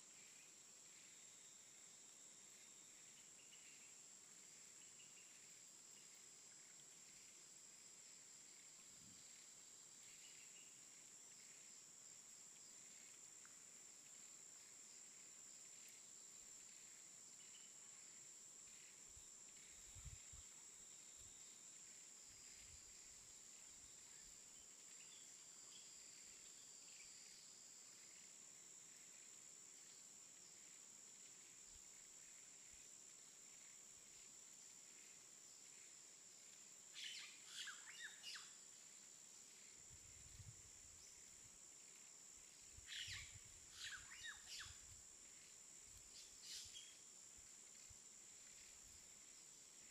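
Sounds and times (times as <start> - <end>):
insects droning: 0.0 - 49.9
faint bird chirps: 36.9 - 38.7, 42.8 - 44.9, 46.1 - 47.1.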